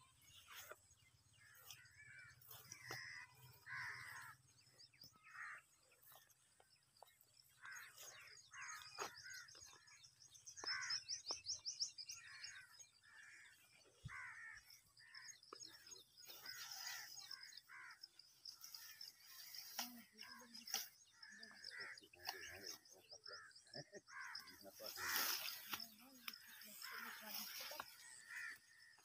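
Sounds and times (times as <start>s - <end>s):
small birds chirping: 0.0s - 29.0s
crows cawing: 1.4s - 4.4s, 5.1s - 5.8s, 7.6s - 10.0s, 10.6s - 11.2s, 12.2s - 15.5s, 16.3s - 29.0s.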